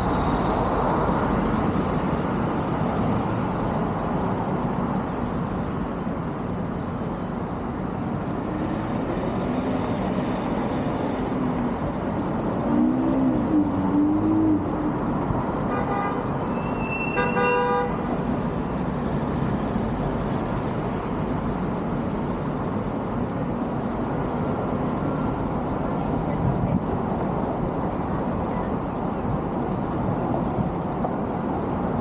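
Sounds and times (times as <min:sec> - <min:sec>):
street traffic noise: 0:00.0 - 0:32.0
car horn honking: 0:15.7 - 0:16.3, 0:17.0 - 0:18.1.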